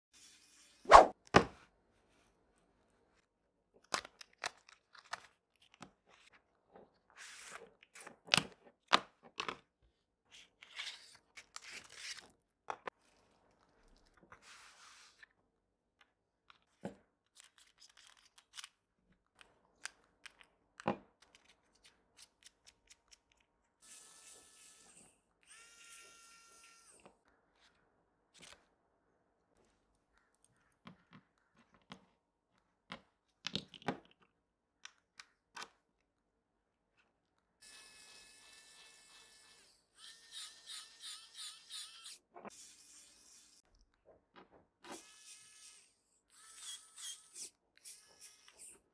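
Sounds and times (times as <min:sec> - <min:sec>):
electric screwdriver motor whirring: 0:23.8 - 0:27.0, 0:37.6 - 0:43.6, 0:44.9 - 0:48.7.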